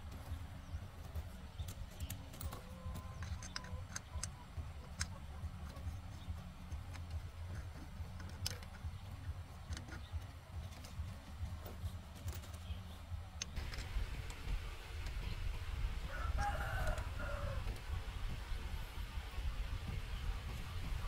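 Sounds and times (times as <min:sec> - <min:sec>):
low steady hum: 0:00.0 - 0:21.0
tools clicking and tapping: 0:01.0 - 0:12.8, 0:13.4 - 0:14.4.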